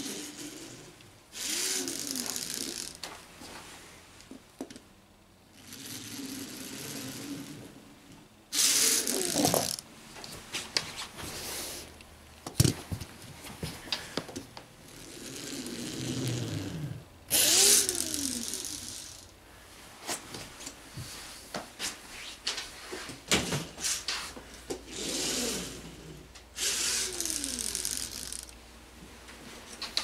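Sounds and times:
toy car wheels whirring: 0.0s - 3.2s, 5.5s - 7.8s, 8.5s - 9.8s, 14.8s - 19.3s, 24.8s - 28.6s
plastic clicking while winding: 1.4s - 3.1s, 8.6s - 9.8s, 17.3s - 19.3s, 26.6s - 28.6s.

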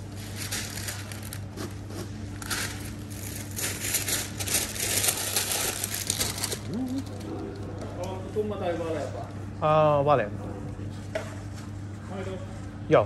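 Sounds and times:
rustling and crinkling: 0.0s - 7.3s
steady low hum: 0.0s - 13.0s.

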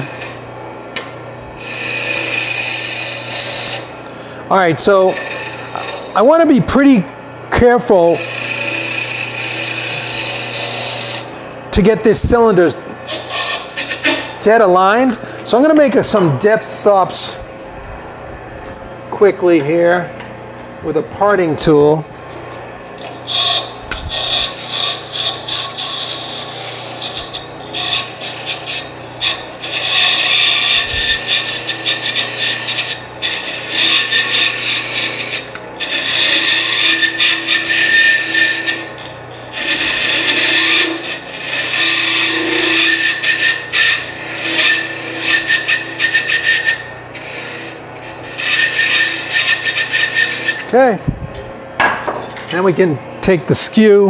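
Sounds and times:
tool scraping turning wood: 0.0s - 0.4s, 1.6s - 7.0s, 7.6s - 17.4s, 21.8s - 51.0s
lathe humming: 0.0s - 54.0s.

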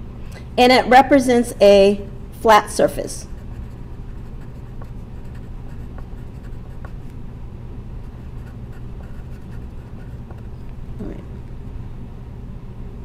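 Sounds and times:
steady low hum: 0.0s - 13.0s
pen scratching on paper: 3.3s - 7.1s, 8.0s - 10.6s.

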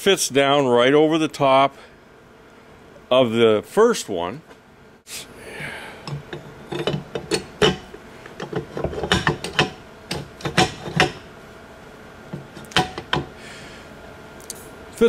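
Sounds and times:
metal clinks and knocks: 6.1s - 11.2s.

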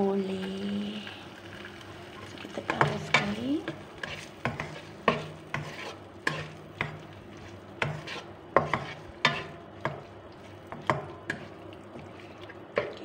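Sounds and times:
meat frying: 0.0s - 13.0s
spatula scraping frying pan: 2.7s - 13.0s.

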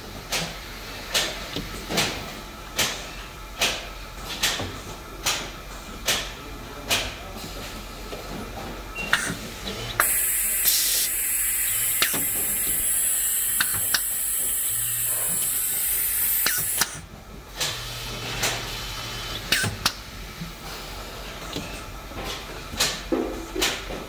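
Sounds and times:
sharp pneumatic clicks: 9.0s - 20.0s
compressed air hissing: 10.0s - 16.9s.

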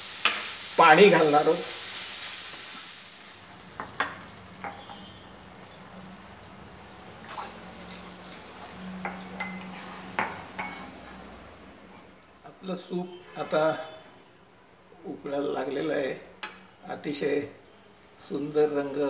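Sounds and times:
wooden spoon scraping a wok: 9.4s - 12.2s.

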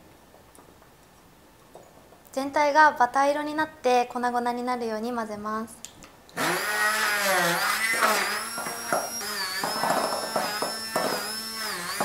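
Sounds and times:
hand blender motor whine: 6.4s - 12.0s.

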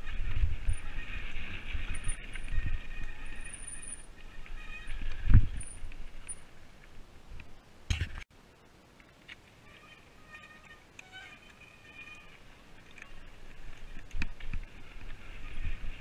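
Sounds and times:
mountain bike rumbling over trail: 0.0s - 6.7s.

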